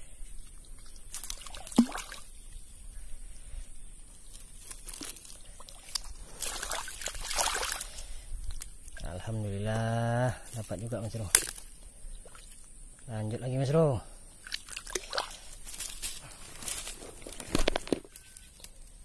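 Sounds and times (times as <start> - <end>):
mud squelching: 0.4 - 2.8, 4.0 - 12.8, 14.3 - 18.6
dry straw crackling: 4.0 - 11.8, 15.1 - 19.0.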